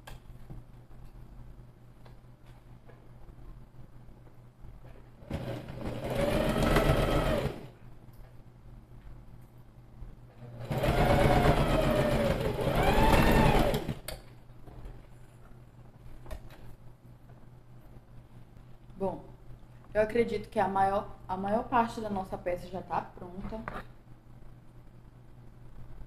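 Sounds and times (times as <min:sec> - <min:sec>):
sewing machine motor whine: 0:05.2 - 0:07.7, 0:10.4 - 0:14.0.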